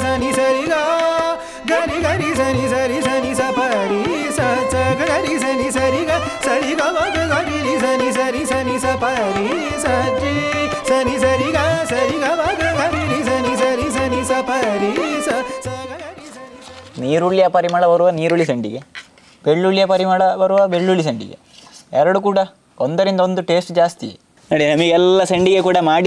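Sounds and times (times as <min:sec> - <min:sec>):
hand drum rhythm: 0:01.7 - 0:16.2.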